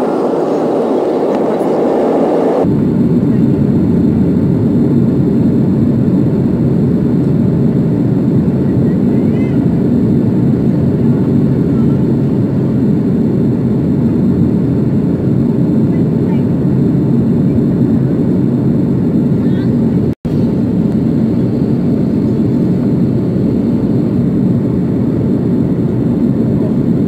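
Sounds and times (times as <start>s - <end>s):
jet engines and airflow rumble: 0.0s - 27.0s.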